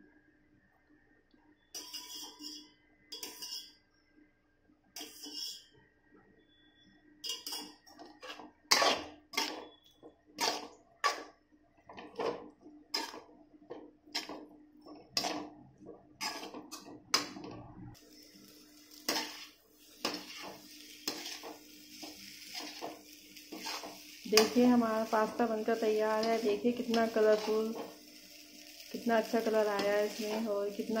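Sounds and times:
metal spatula scraping metal pan: 1.7 - 3.8, 5.0 - 5.8, 7.2 - 11.3, 11.9 - 13.3, 14.1 - 15.6, 16.2 - 17.4, 18.9 - 28.4, 29.2 - 31.0
frying sizzle: 14.1 - 14.5, 18.0 - 31.0.

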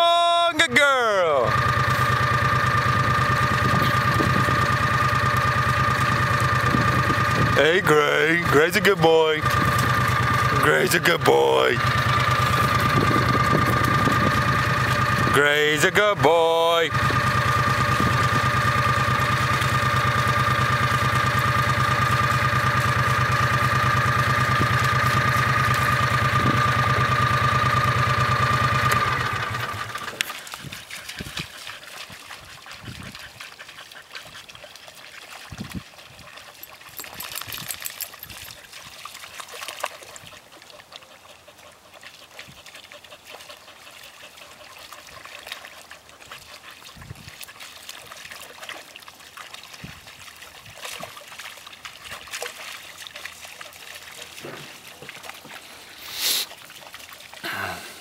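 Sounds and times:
dogs splashing in puddle: 1.0 - 58.0
engine drone with whine: 1.1 - 30.5
water trickling: 34.5 - 40.8.

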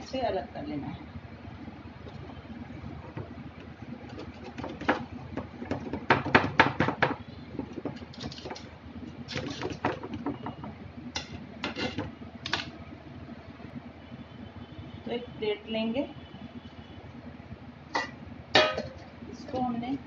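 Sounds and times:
knife scraping metal tin: 11.6 - 12.1.

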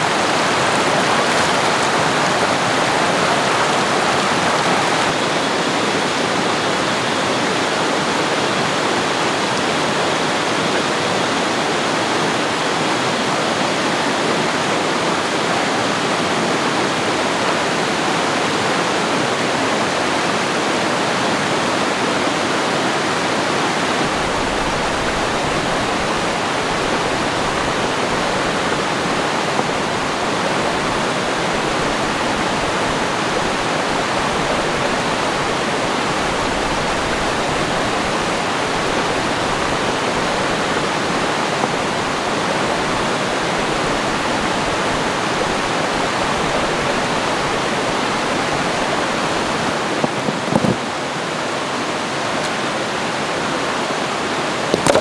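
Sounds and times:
stream rushing over stones: 0.0 - 55.0
small knocks: 50.0 - 50.8.

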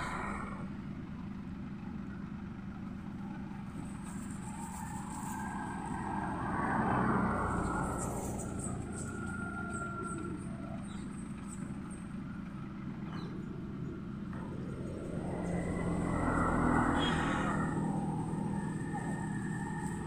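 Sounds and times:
road noise: 0.0 - 20.0
vehicle engine humming: 0.0 - 20.0.

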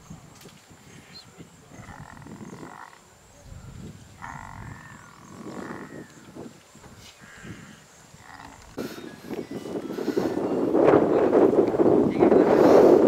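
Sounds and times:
low elephant rumbling: 1.7 - 3.0, 4.1 - 6.4, 7.2 - 11.3.

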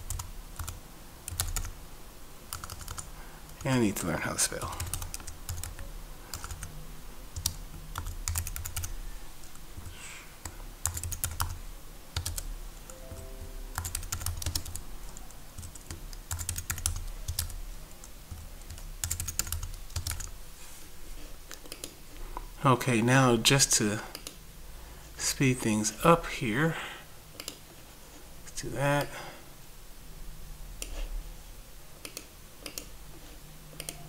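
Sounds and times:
keyboard typing: 0.0 - 1.8, 2.5 - 3.7, 4.6 - 9.6, 10.4 - 20.4, 33.7 - 34.0
steady low hum: 0.0 - 33.8.

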